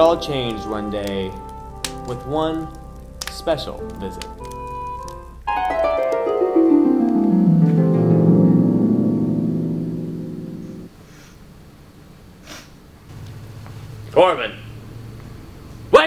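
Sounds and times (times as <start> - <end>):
descending harp-like glissando: 5.5 - 10.9.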